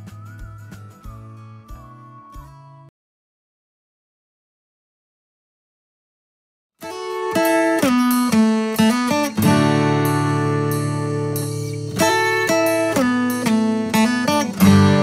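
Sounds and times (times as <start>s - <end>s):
plucked-string chords: 6.8s - 15.0s.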